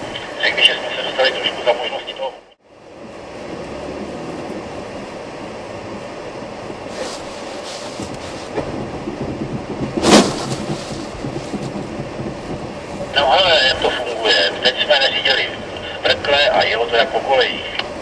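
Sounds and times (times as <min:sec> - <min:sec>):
tyre and road noise: 0:00.0 - 0:18.0
water spattering on windscreen: 0:06.8 - 0:13.3.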